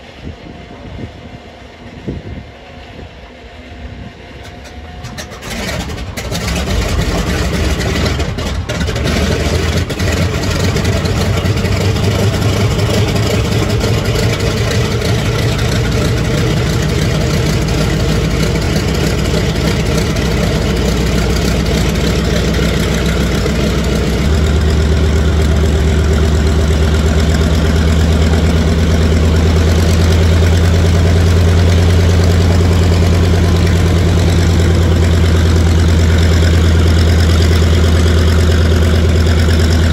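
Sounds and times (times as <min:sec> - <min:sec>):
radial engine starting and idling: 0:04.2 - 0:39.9.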